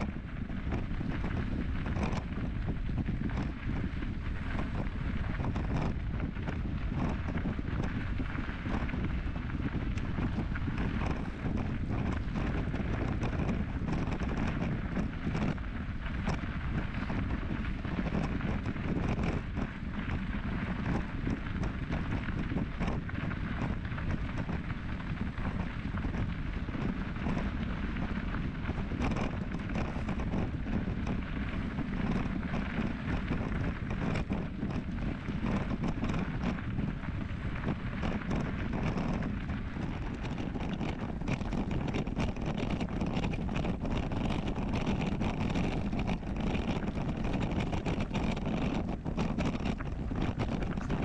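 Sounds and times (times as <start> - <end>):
wind buffeting microphone: 0.0 - 51.0
small clicks and knocks: 28.7 - 31.2, 37.6 - 51.0.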